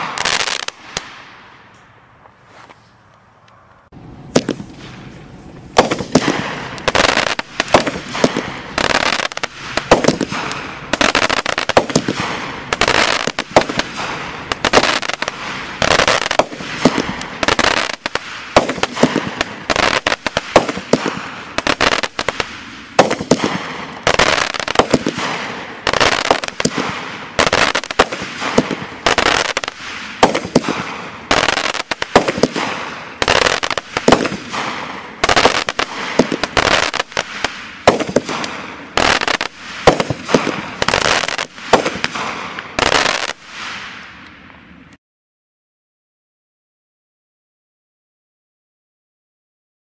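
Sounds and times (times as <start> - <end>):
fireworks bangs: 0.0 - 1.9, 4.0 - 44.8.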